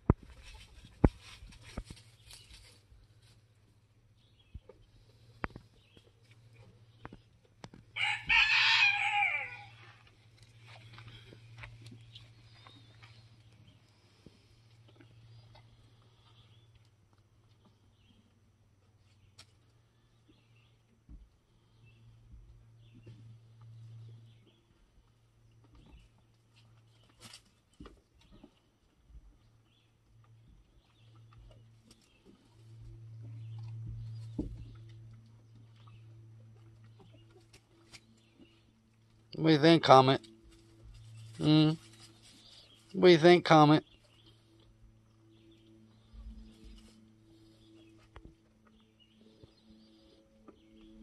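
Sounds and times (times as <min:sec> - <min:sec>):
low steady hum: 0:00.0 - 0:51.0
rooster crowing: 0:08.0 - 0:10.0.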